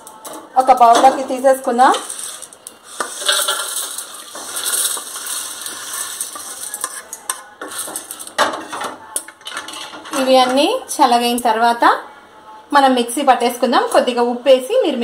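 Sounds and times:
food rattling into metal bowl: 1.9s - 10.6s.

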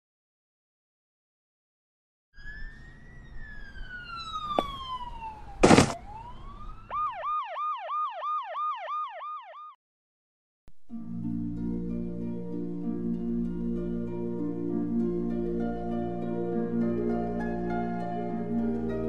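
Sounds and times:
police siren wailing and yelping: 2.4s - 9.8s.

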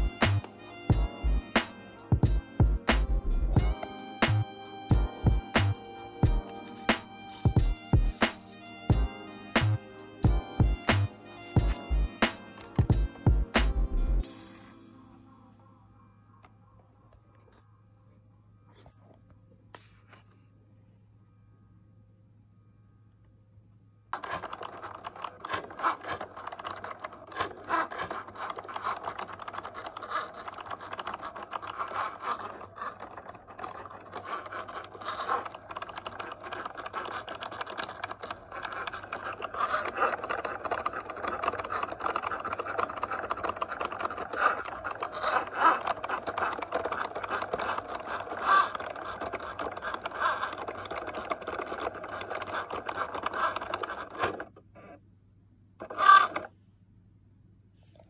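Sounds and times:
cutting machine motors whirring: 0.0s - 14.8s, 24.2s - 55.0s, 55.8s - 56.5s
small clicks: 24.2s - 54.7s.

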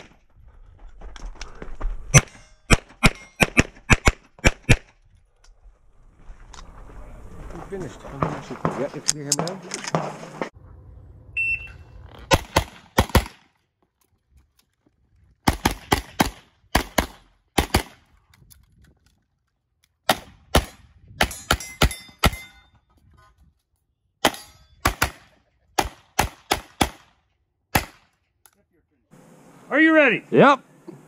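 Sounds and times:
rapid pistol fire: 12.3s - 13.4s, 15.5s - 18.0s.

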